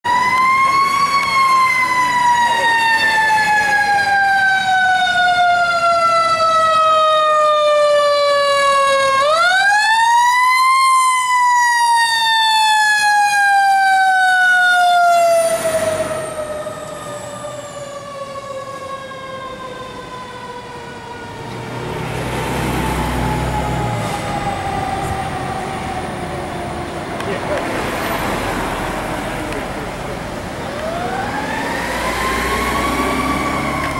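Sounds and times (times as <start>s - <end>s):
fire engine siren wailing: 0.0s - 33.9s
truck engine rumbling: 14.4s - 33.9s.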